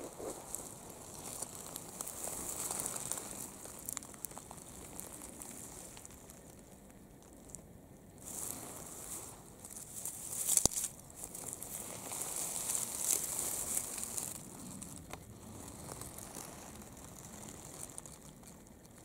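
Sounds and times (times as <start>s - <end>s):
dry grass and leaves rustling: 0.0s - 19.0s.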